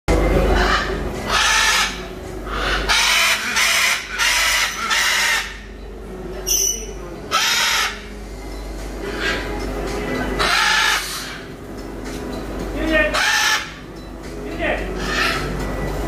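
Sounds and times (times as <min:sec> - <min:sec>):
macaws squawking: 0:00.4 - 0:05.8, 0:06.5 - 0:08.2, 0:09.0 - 0:09.7, 0:10.4 - 0:11.6, 0:12.8 - 0:14.0, 0:14.6 - 0:15.6.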